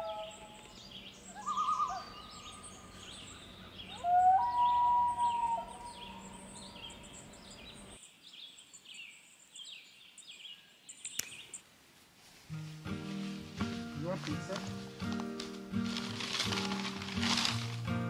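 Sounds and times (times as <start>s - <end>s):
birds chirping: 0.0s - 11.7s
bird call rising in pitch: 1.3s - 7.1s.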